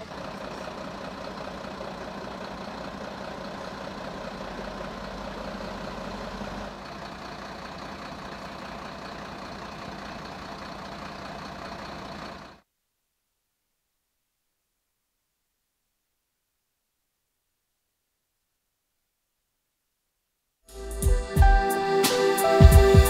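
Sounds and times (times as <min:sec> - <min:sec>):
diesel engines idling: 0:00.0 - 0:12.6, 0:20.7 - 0:23.0.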